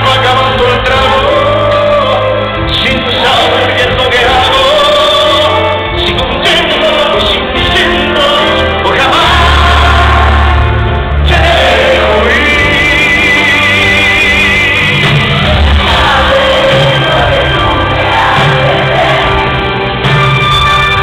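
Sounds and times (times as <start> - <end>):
band with sustained bass: 0.0 - 21.0
singer holding long notes: 0.0 - 21.0.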